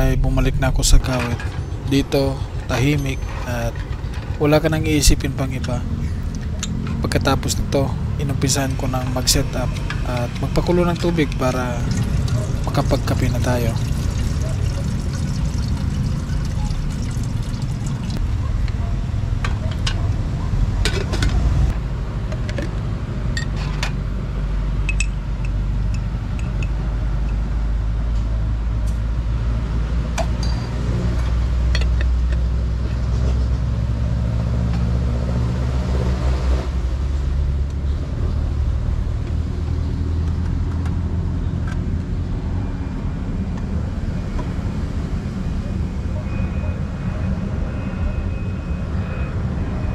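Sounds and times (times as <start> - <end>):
road traffic rumble: 0.0 - 49.9
kettle and cup clinking: 9.2 - 18.2.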